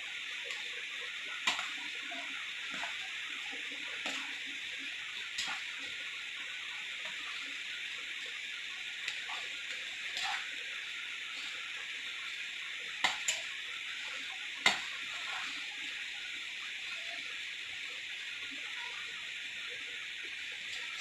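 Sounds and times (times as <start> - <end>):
steady hiss: 0.0 - 21.0
spoon stirring rice in pot: 9.0 - 10.5.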